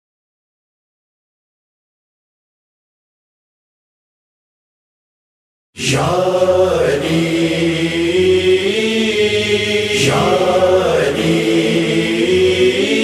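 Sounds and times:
chorus of voices chanting: 5.8 - 13.0.

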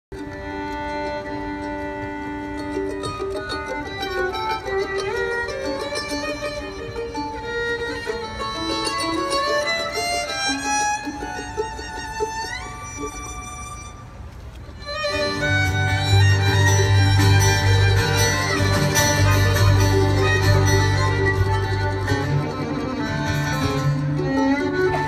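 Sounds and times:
bluegrass band playing: 0.1 - 25.0
fiddle playing fast melody: 0.1 - 25.0
upright bass: 15.2 - 25.0.

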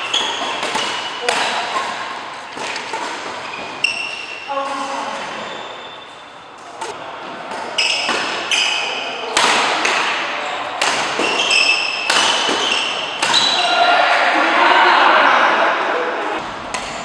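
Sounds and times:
racket striking shuttlecock: 0.0 - 4.8, 6.7 - 13.6
shoes squeaking on court: 0.0 - 9.0, 10.4 - 13.7.

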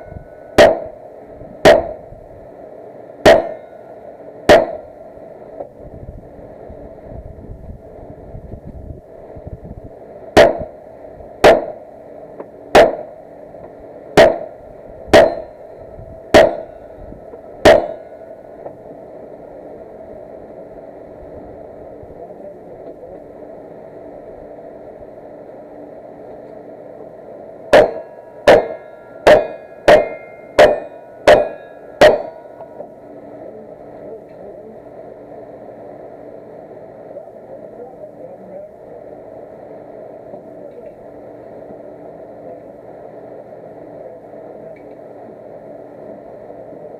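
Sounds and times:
gunshots: 0.6 - 1.0, 1.6 - 2.0, 3.2 - 3.7, 4.5 - 4.9, 10.4 - 10.7, 11.4 - 11.8, 12.7 - 13.1, 14.2 - 15.5, 16.3 - 16.8, 17.6 - 18.1, 27.7 - 32.5
steel targets ringing: 3.2 - 4.9, 15.1 - 17.0, 17.6 - 18.4, 27.7 - 32.8.

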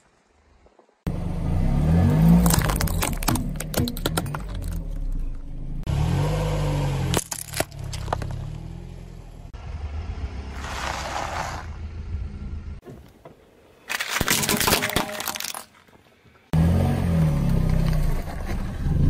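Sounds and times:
plastic bottle crushed by tyre: 2.3 - 4.8, 13.9 - 15.8.

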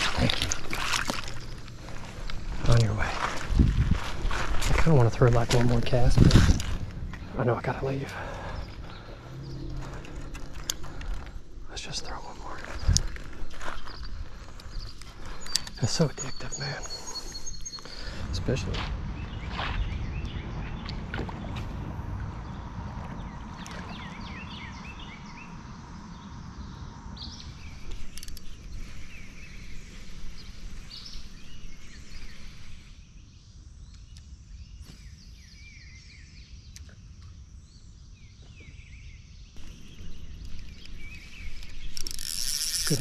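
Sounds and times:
songbirds chirping: 0.0 - 43.0
low rushing noise: 17.9 - 24.9.

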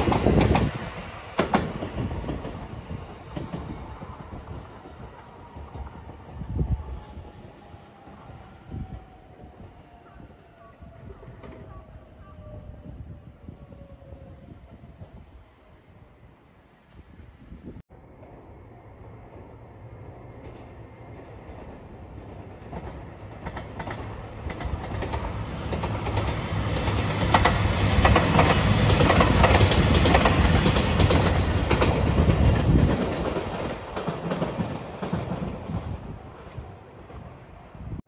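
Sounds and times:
diesel train engine hum: 13.0 - 35.1.

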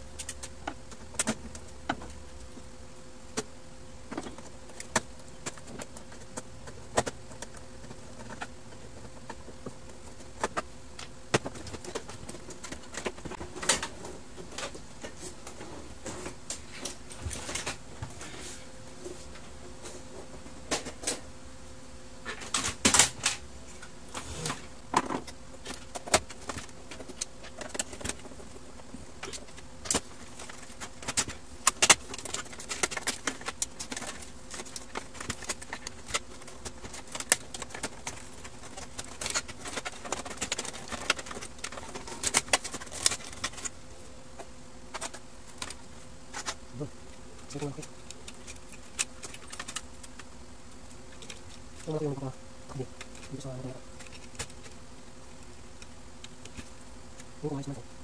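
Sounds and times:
plastic parts clicking and rattling: 4.1 - 15.2, 24.9 - 43.8, 44.4 - 46.6, 47.4 - 52.0, 53.0 - 57.3.

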